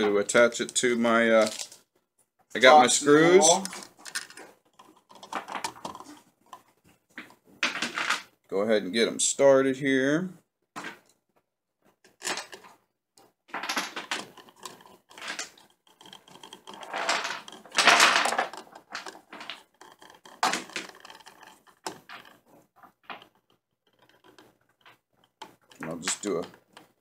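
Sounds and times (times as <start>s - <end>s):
screwdriver scraping and clicking: 3.6s - 7.4s, 12.0s - 13.3s, 14.0s - 27.0s.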